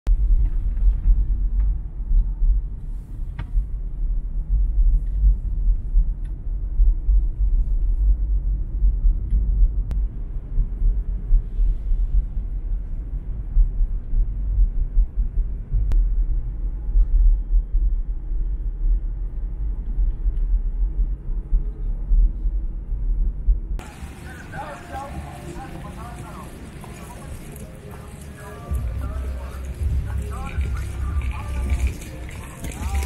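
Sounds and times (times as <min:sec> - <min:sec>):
road and engine noise: 0:23.8 - 0:33.0.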